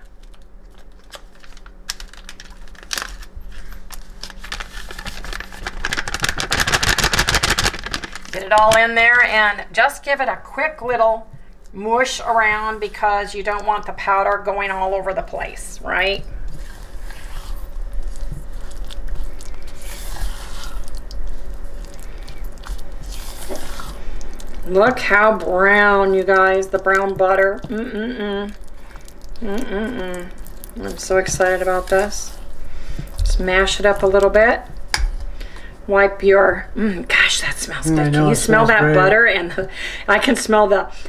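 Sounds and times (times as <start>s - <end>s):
powder packet crinkling: 0.0s - 9.3s, 16.6s - 27.7s
low hum: 0.0s - 41.0s
spatula squishing cream cheese: 16.5s - 27.8s, 28.4s - 32.4s.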